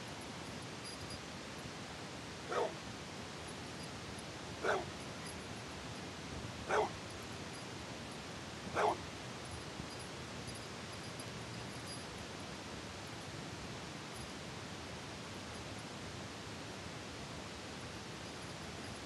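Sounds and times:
dog barking: 0:02.5 - 0:02.8, 0:04.6 - 0:04.9, 0:06.7 - 0:07.0, 0:08.7 - 0:09.0.

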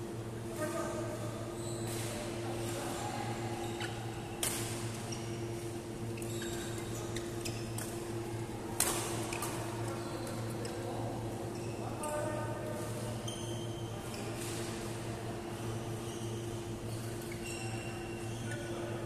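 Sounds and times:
shoes squeaking on court: 0:01.5 - 0:10.9, 0:13.0 - 0:14.7, 0:15.7 - 0:18.7
rackets hitting shuttlecock: 0:08.8 - 0:09.6.

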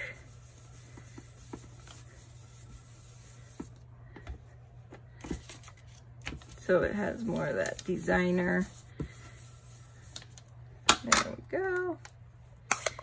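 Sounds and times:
brush rubbing on cardstock: 0:00.0 - 0:03.8, 0:06.4 - 0:10.2
steady low hum: 0:00.0 - 0:13.0.

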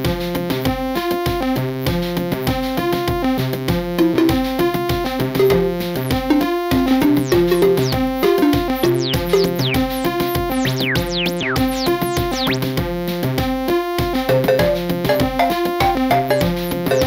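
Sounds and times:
synthesizer music: 0:04.0 - 0:12.7, 0:14.3 - 0:17.0.

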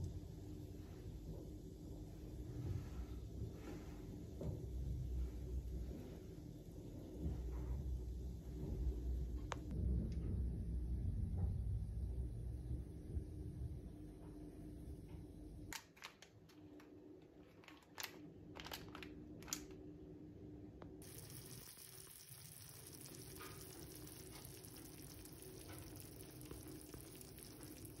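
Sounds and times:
food sizzling and crackling: 0:21.0 - 0:28.0.

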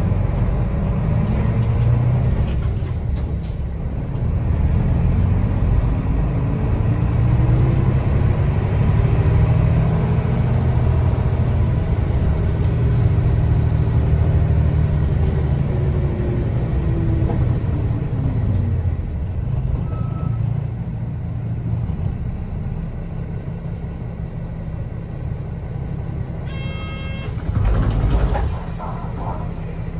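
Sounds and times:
bus engine running: 0:00.0 - 0:29.9
electronic beep tone: 0:26.5 - 0:27.4.

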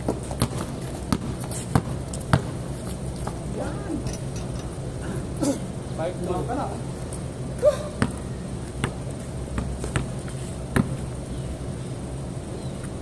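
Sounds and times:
basketball bouncing on concrete: 0:00.0 - 0:02.6, 0:08.0 - 0:11.1
steady low hum: 0:00.0 - 0:13.0.

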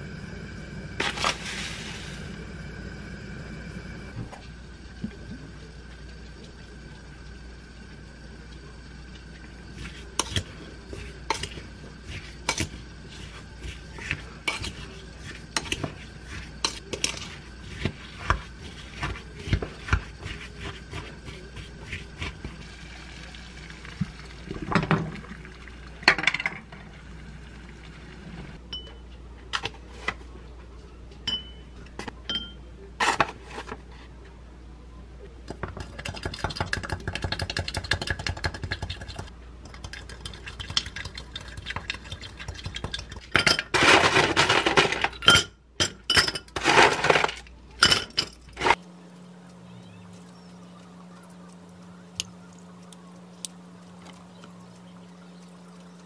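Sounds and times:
spoon clinking in glass bowl: 0:31.3 - 0:31.6.

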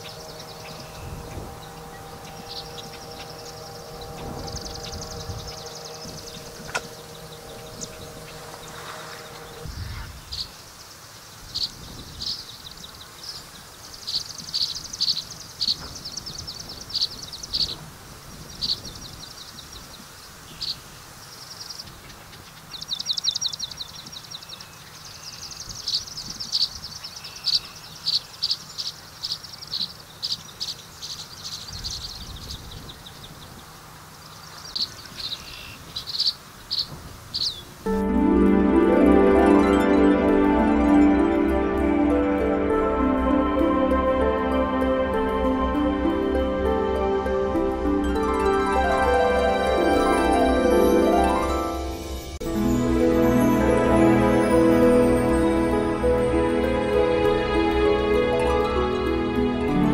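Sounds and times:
swallows twittering: 0:00.0 - 0:17.8, 0:18.4 - 0:37.8.

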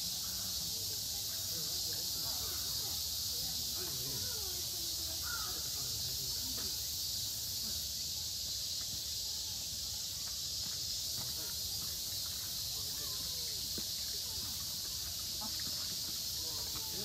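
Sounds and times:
high-pitched insect chorus: 0:00.0 - 0:17.0.

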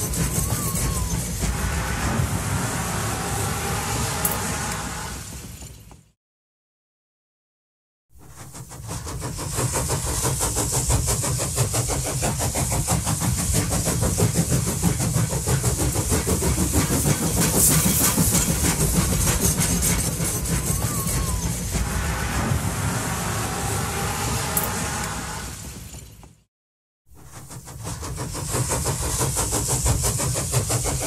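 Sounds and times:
train rumbling and clattering: 0:00.0 - 0:06.2, 0:08.2 - 0:26.5, 0:27.2 - 0:31.0.

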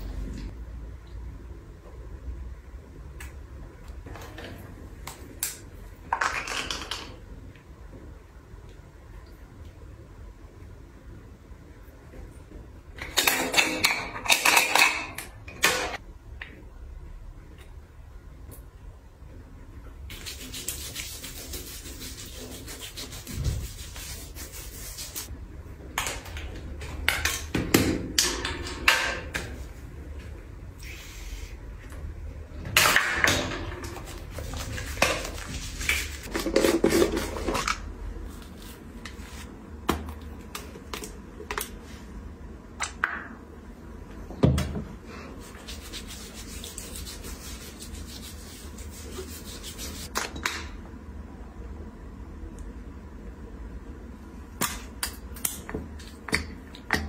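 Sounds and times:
hand rubbing gritty scrub on skin: 0:20.1 - 0:25.3, 0:45.4 - 0:50.1.

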